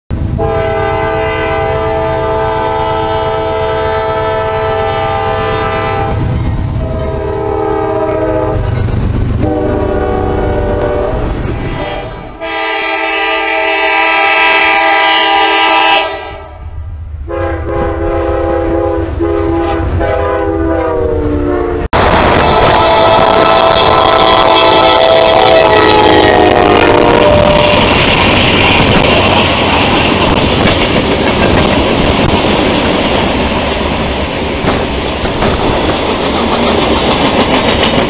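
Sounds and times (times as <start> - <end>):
passing trains rumbling: 0.1 - 38.0
locomotive air horn chords: 0.4 - 8.6, 9.4 - 16.7, 17.3 - 28.0.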